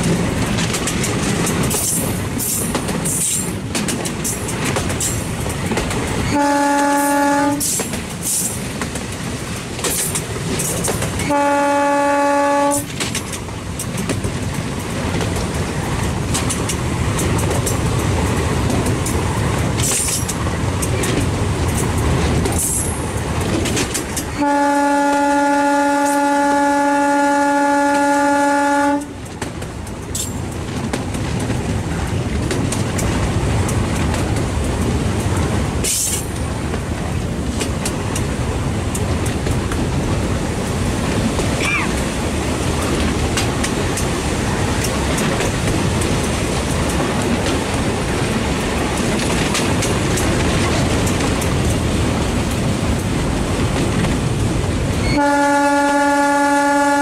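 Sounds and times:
train rumbling along track: 0:00.0 - 0:57.0
locomotive horn: 0:06.3 - 0:07.8, 0:11.2 - 0:12.9, 0:24.4 - 0:29.2, 0:55.0 - 0:57.0.

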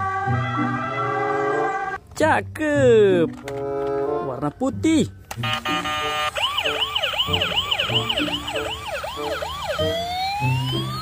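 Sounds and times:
ambulance siren: 0:00.0 - 0:01.9, 0:05.3 - 0:11.0.

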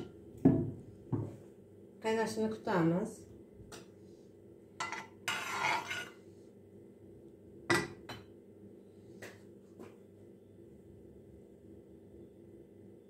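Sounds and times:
dishes and utensils clinking: 0:04.8 - 0:06.2.

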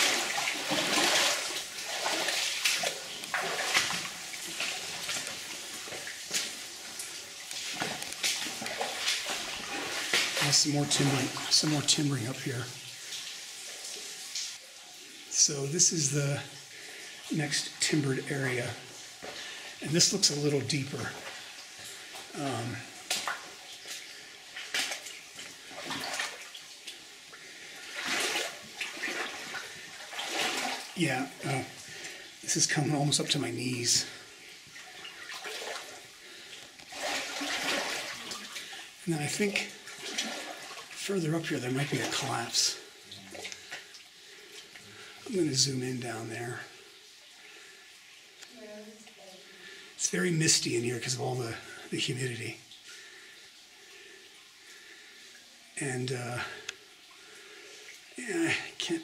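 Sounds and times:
footsteps wading through water: 0:00.0 - 0:12.2, 0:19.1 - 0:32.8, 0:34.2 - 0:38.8, 0:39.4 - 0:42.3
steady watery hiss: 0:00.0 - 0:35.2, 0:35.9 - 0:59.0.

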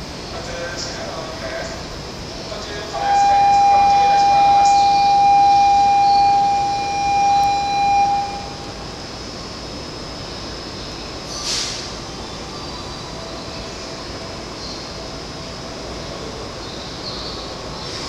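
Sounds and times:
long steady tone: 0:00.0 - 0:17.8
train rolling in: 0:00.0 - 0:18.0
short hiss: 0:11.3 - 0:12.0.

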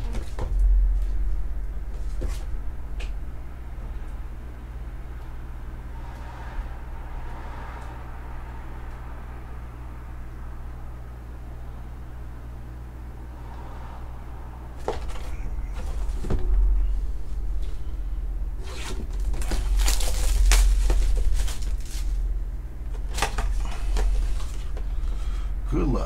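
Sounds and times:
shrink wrap tearing: 0:18.6 - 0:22.2
plastic crinkling: 0:18.8 - 0:22.3.

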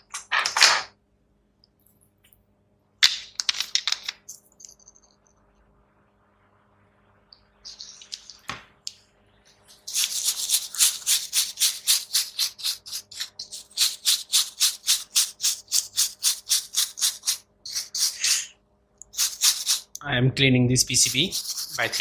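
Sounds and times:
stiff brush scrubbing circuit board: 0:09.7 - 0:20.0, 0:20.8 - 0:22.0.

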